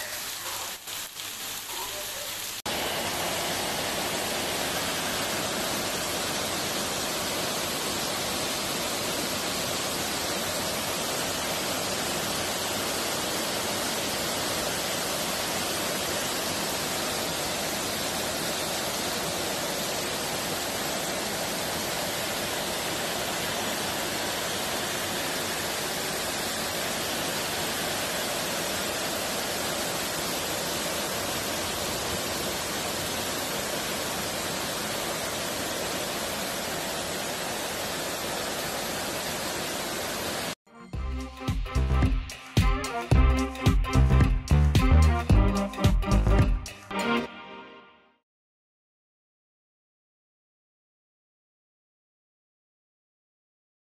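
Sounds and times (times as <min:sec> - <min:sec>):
heavy rain and hail pelting: 0:00.0 - 0:05.8.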